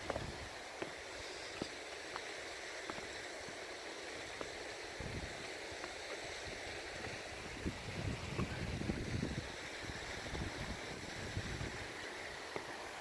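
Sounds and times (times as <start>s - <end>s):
mountain stream rushing: 0.0s - 13.0s
wind buffeting microphone: 5.0s - 5.4s, 7.3s - 11.9s.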